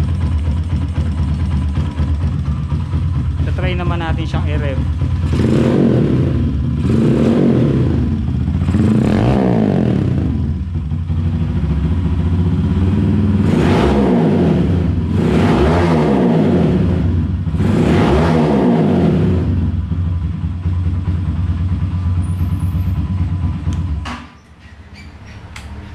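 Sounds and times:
motorcycle engine throttle blips: 0.0 - 15.9.

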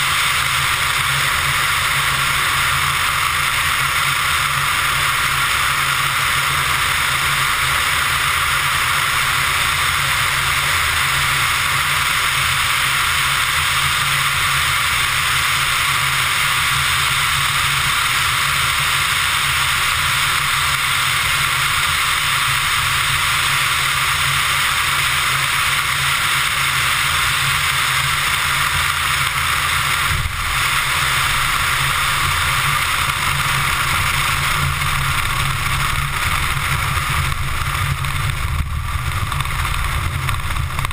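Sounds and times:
light aircraft engine droning: 0.0 - 40.9
wind rush: 29.8 - 40.9.

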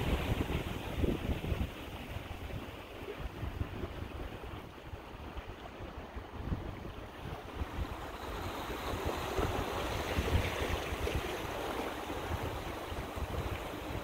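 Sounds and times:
surf washing against rocks: 0.0 - 14.0
wind buffeting microphone: 0.0 - 14.0.

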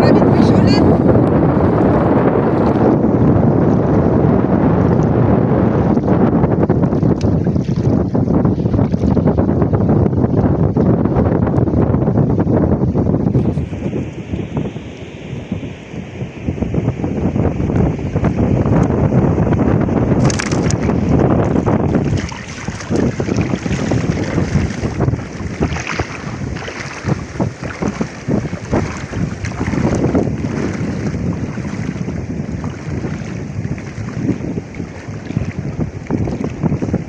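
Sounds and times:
wind buffeting microphone: 0.0 - 37.0
water sloshing around wading legs: 5.9 - 9.4, 20.2 - 37.0.

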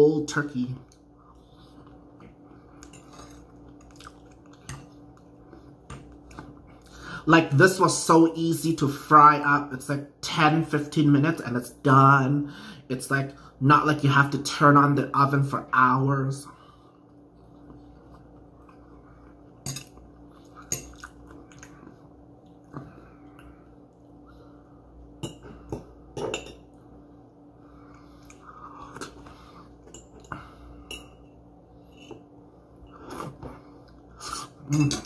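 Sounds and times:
soft chewing: 0.8 - 6.9, 16.6 - 26.0, 26.7 - 34.6.

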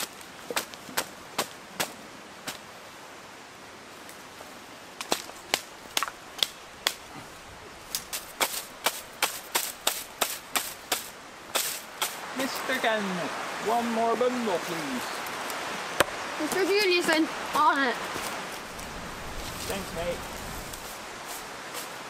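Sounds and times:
wooden tool beating reed thatch: 0.0 - 2.6, 5.0 - 7.1, 7.9 - 12.6.

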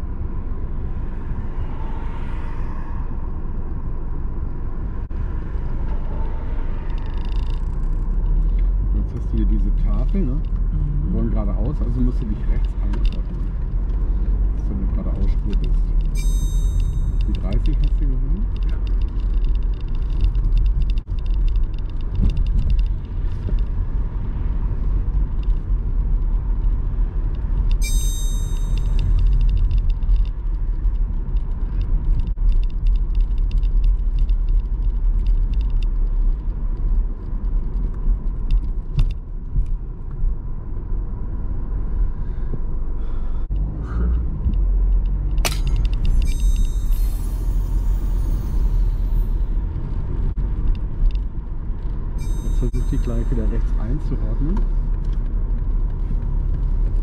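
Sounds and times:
car road and engine rumble: 0.0 - 57.0
sharp click: 45.3 - 46.9
brief high squeal: 46.2 - 49.1.

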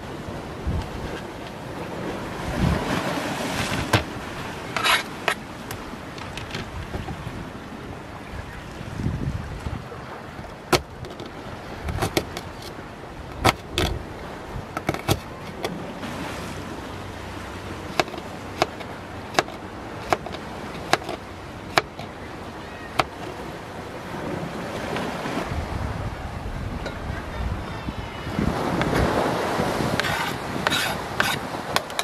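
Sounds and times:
waves: 0.0 - 32.0
wind: 0.0 - 32.0
knife chopping on plastic board: 11.9 - 12.5, 13.4 - 13.9, 14.8 - 15.7, 17.9 - 22.1, 23.0 - 23.3.

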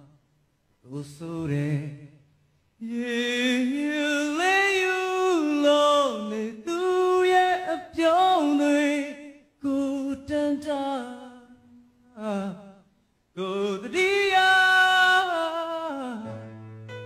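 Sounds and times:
man singing into a microphone: 0.8 - 16.5.

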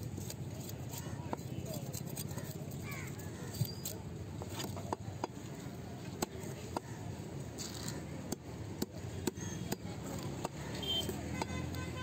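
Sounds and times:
knife scraping fish scales: 0.0 - 4.1.

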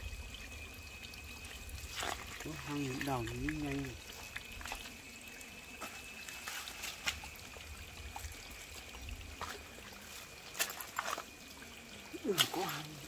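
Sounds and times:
faint trickle of water: 0.0 - 13.0
footsteps on muddy rocky path: 9.4 - 11.2.

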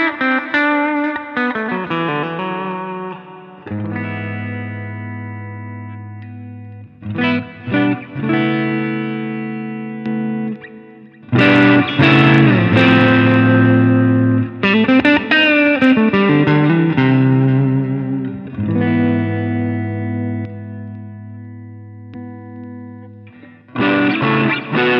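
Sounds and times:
electric guitar chords and notes: 0.0 - 24.9.

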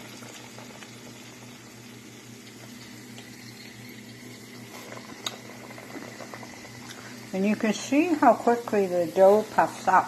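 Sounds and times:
dough deep-frying in hot oil: 0.0 - 10.0.

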